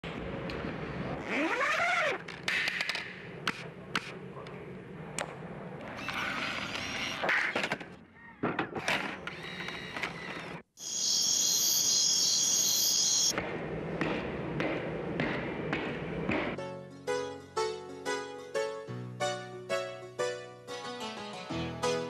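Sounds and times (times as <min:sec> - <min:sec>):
high-pitched whine: 0:10.8 - 0:13.4.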